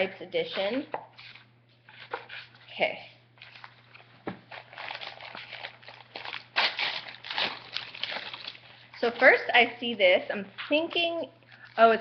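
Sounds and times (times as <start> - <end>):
paper packaging rustling: 3.4 - 9.4.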